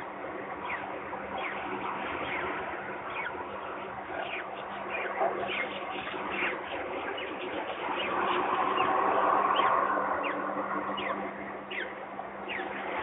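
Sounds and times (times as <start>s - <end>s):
steady low hum: 0.0s - 13.0s
bird chicks peeping: 0.5s - 13.0s.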